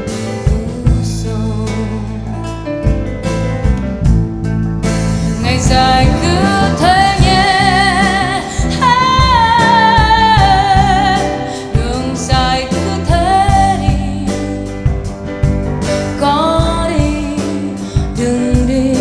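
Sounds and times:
acoustic guitar: 0.0 - 19.0
piano: 0.0 - 19.0
woman singing with vibrato: 5.4 - 14.6, 16.2 - 19.0.

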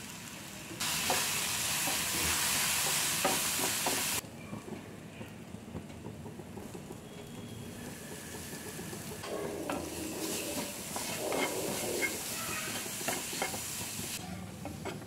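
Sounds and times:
food sizzling in metal pan: 0.0 - 4.2, 7.6 - 15.0
wooden spatula scraping pan: 6.6 - 15.0.

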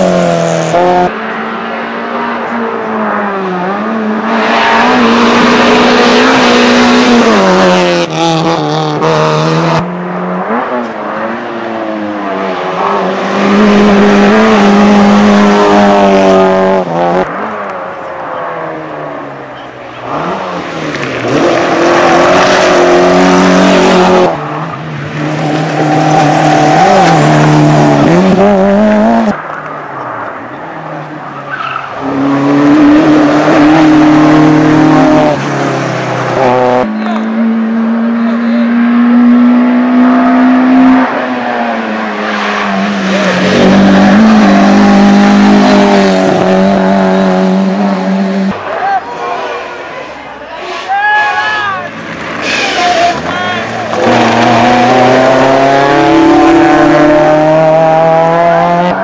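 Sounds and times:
rally car engines revving: 0.0 - 59.0
tyres squealing: 48.7 - 55.1.

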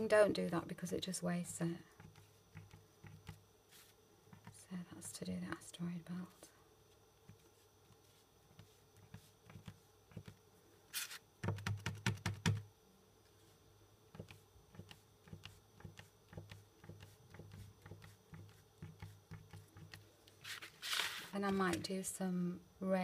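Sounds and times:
marker pen tapping: 2.0 - 3.4, 11.4 - 12.6, 14.2 - 20.0
scratchy rustle: 20.4 - 21.4.

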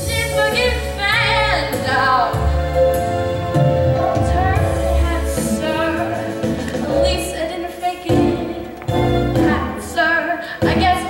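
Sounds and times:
instrumental accompaniment: 0.0 - 11.0
woman singing show tune: 4.2 - 8.8, 9.4 - 11.0.

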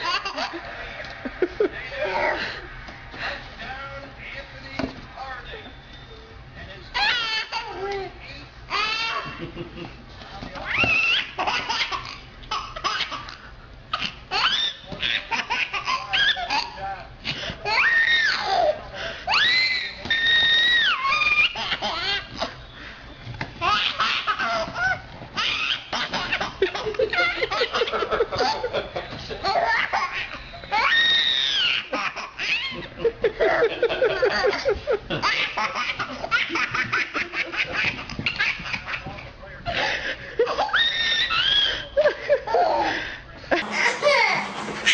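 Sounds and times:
baby laughing and giggling: 0.0 - 0.7, 6.9 - 9.4, 10.7 - 16.8, 43.6 - 44.9
baby laughing: 0.0 - 0.9, 6.9 - 9.5, 10.7 - 16.8, 20.4 - 22.6, 23.6 - 28.8, 29.4 - 39.3, 40.4 - 42.9, 43.6 - 44.9
baby squealing: 7.0 - 7.9, 8.7 - 9.2, 10.7 - 12.2, 13.9 - 16.8, 17.7 - 18.7, 19.3 - 22.5, 23.6 - 26.4, 29.4 - 32.8, 40.6 - 41.8, 43.6 - 44.9.

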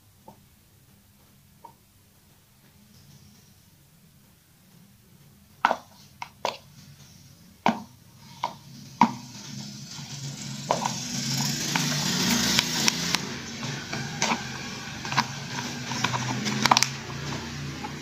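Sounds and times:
scraping and rustling: 5.6 - 18.0
stick tapping plastic cup: 11.7 - 18.0.

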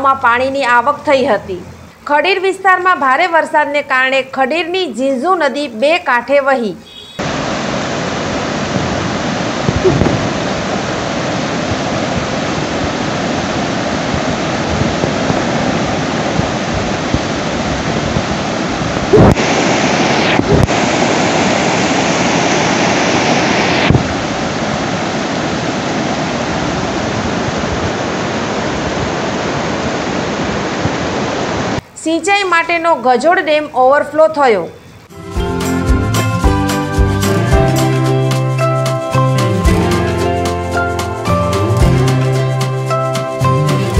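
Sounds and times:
river rushing over rocks: 7.2 - 31.8
brief thumps: 9.7 - 10.3.

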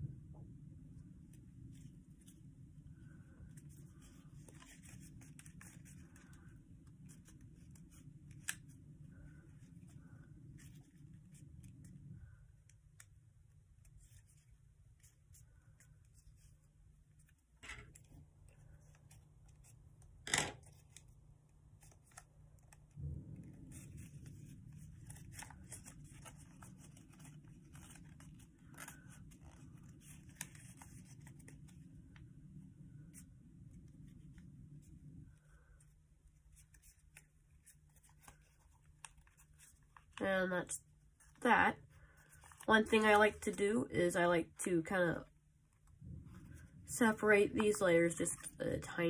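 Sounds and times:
steady low hum: 0.0 - 20.3, 20.9 - 49.0
paper rustling and crinkling: 3.0 - 12.0, 13.8 - 32.3, 32.9 - 43.6.

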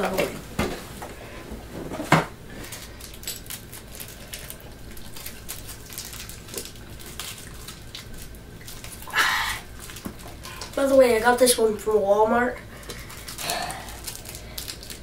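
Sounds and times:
plastic packaging crinkling: 2.5 - 11.6, 12.8 - 15.0.

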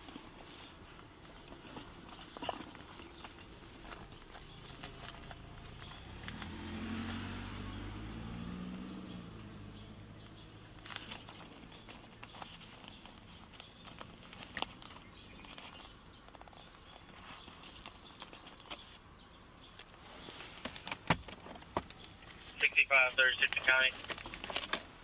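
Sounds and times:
rustling: 0.0 - 7.6, 9.2 - 19.1, 19.7 - 25.0
birds chirping: 0.0 - 24.6
vehicle engine passing: 4.4 - 12.2.

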